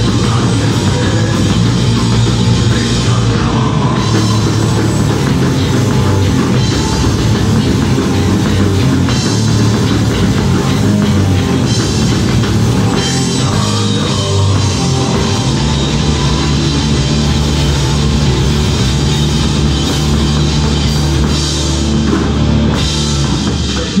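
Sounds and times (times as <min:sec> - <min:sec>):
person singing into microphone: 0:00.0 - 0:05.2, 0:12.8 - 0:15.8
bass guitar: 0:00.0 - 0:24.0
drum kit: 0:00.0 - 0:24.0
electric guitar: 0:00.0 - 0:24.0.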